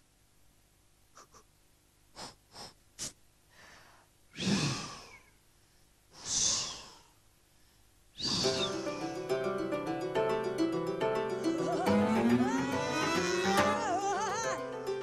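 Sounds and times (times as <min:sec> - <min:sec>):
short breath puffs: 0:02.1 - 0:04.1.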